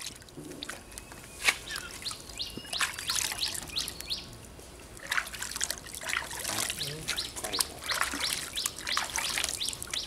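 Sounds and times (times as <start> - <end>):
water sloshing in a basin: 0.0 - 4.1, 4.9 - 10.0
small birds chirping: 0.8 - 4.4, 6.3 - 10.0.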